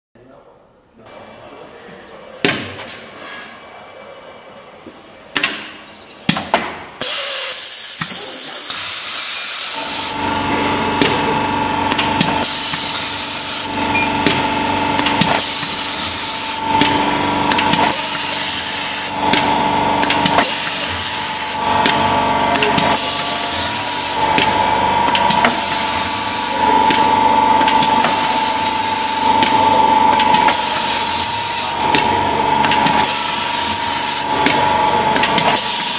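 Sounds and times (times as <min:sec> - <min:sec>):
laminator running: 0:01.1 - 0:35.9
laminator hiss: 0:07.0 - 0:10.2, 0:15.4 - 0:16.6, 0:22.5 - 0:24.2, 0:30.5 - 0:31.8
laminator clicks: 0:14.2 - 0:15.8, 0:19.3 - 0:21.0, 0:26.9 - 0:28.2, 0:31.9 - 0:33.2, 0:34.4 - 0:35.8.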